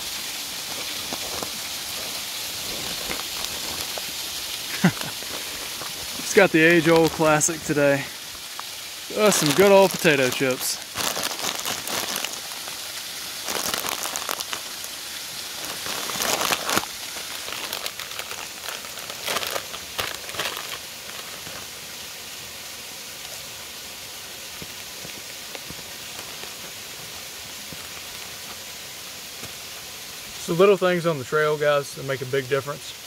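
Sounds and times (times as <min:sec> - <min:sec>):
waterfall rushing: 0:00.0 - 0:32.1
chip bag crinkling: 0:00.7 - 0:21.7.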